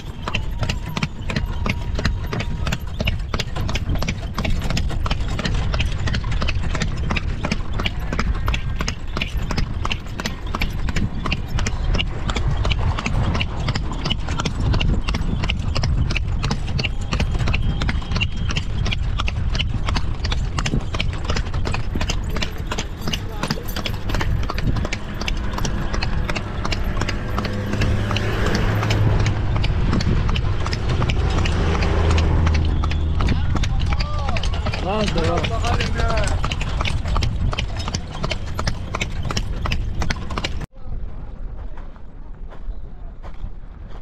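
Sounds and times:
horse hooves clip-clopping: 0:00.0 - 0:44.0
low rumble: 0:19.0 - 0:42.5.

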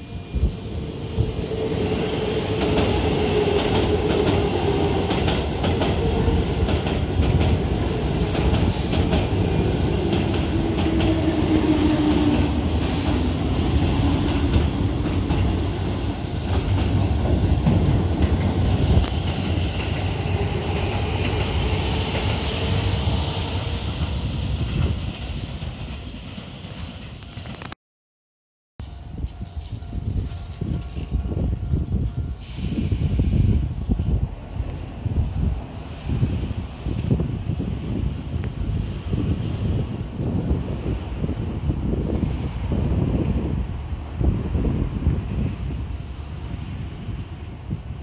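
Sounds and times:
electric train passing: 0:00.0 - 0:27.7, 0:28.8 - 0:48.0.

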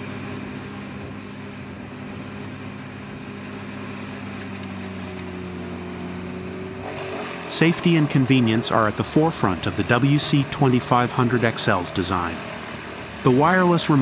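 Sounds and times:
wood chipper running: 0:00.0 - 0:14.0.

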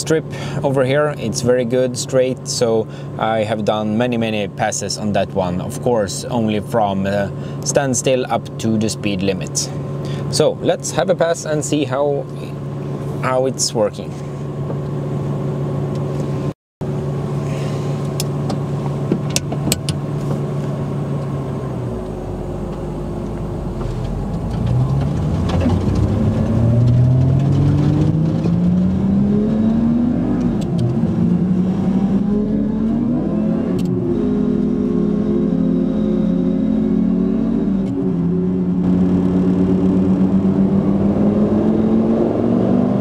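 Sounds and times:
car engine accelerating hard: 0:20.1 - 0:43.0.

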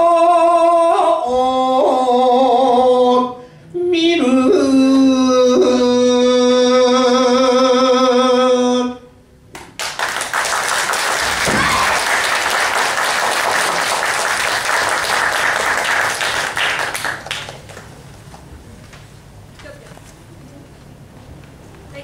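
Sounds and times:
audience applause: 0:09.8 - 0:17.9.

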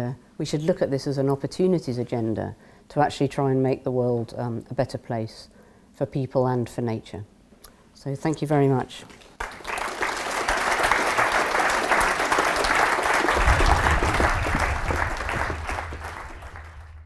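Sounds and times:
audience applauding: 0:09.1 - 0:17.0
low hum: 0:13.3 - 0:17.0.

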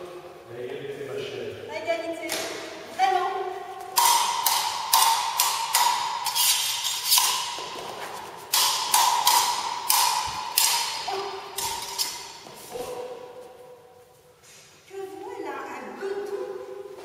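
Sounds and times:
sword blades clashing: 0:04.0 - 0:13.3.

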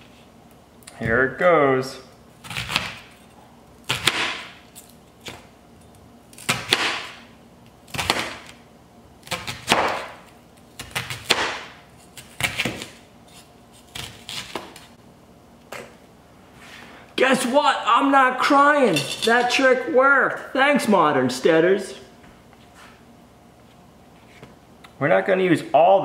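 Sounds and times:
knife slicing onion: 0:02.4 - 0:03.1, 0:03.8 - 0:04.6, 0:06.3 - 0:07.3, 0:07.9 - 0:08.6, 0:09.2 - 0:14.9.

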